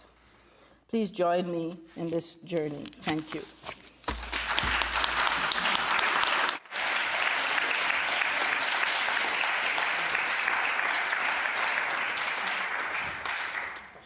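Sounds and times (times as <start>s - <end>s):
crowd applauding: 4.2s - 14.0s.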